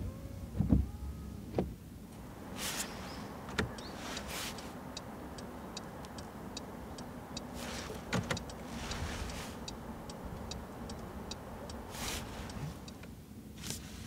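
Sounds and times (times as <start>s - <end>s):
short rustles: 2.5s - 4.8s, 7.5s - 9.7s, 11.9s - 12.9s
indicator ticking: 3.7s - 7.6s, 9.6s - 11.9s.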